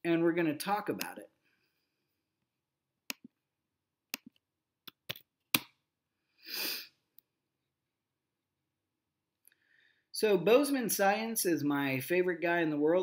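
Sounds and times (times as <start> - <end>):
short breathy sniff: 6.4 - 7.0.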